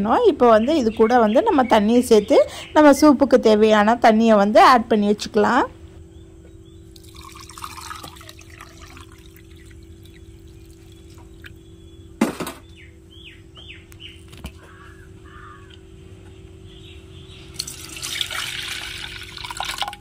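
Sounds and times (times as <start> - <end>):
water pouring into steel jar: 7.0 - 11.1, 17.6 - 20.0.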